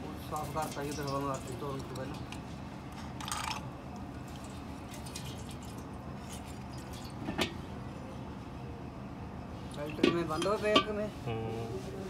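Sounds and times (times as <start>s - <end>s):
fuel dripping into iron pan: 9.7s - 11.0s.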